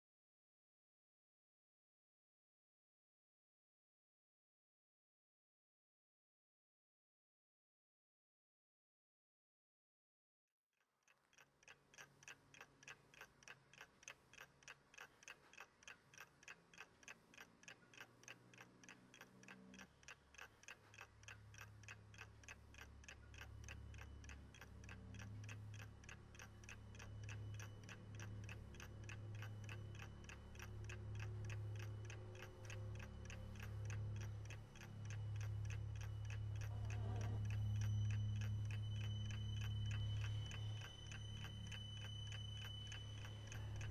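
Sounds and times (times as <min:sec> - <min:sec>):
alarm clock ticking: 0:11.3 - 0:43.9
low steady hum: 0:12.8 - 0:43.9.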